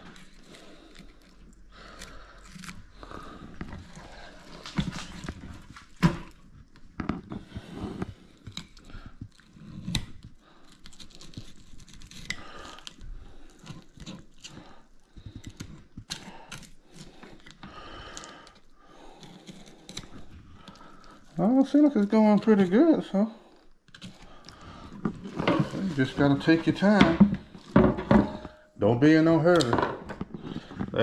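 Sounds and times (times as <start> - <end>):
knife cutting and scraping fish skin: 0.0 - 23.1, 23.8 - 28.6.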